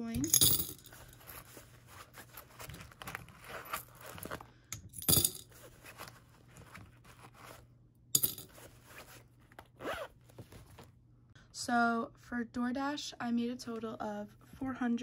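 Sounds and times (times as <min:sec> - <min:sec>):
coins clinking into glass jar: 0:00.2 - 0:01.3, 0:05.0 - 0:05.4, 0:08.2 - 0:08.5
coins jingling: 0:00.2 - 0:01.5, 0:05.0 - 0:05.5, 0:08.2 - 0:08.6.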